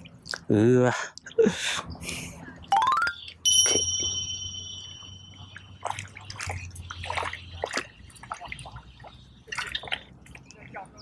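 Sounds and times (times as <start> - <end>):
high ringing chime: 2.8 - 5.9
fish splashing and dripping: 4.6 - 10.8.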